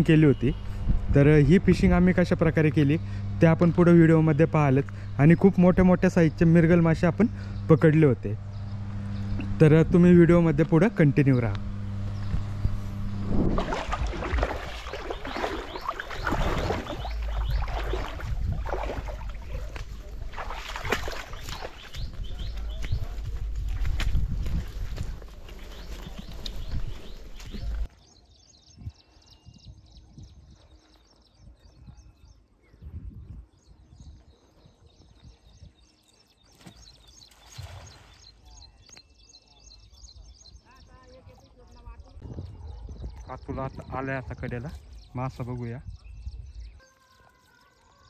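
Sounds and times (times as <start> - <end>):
low rumbling: 0.0 - 27.9
small birds chirping: 4.2 - 10.0, 10.7 - 48.0
wind buffeting microphone: 11.6 - 27.9, 31.4 - 35.9, 41.8 - 45.1
water splashing and sloshing: 13.3 - 27.9, 36.5 - 38.4.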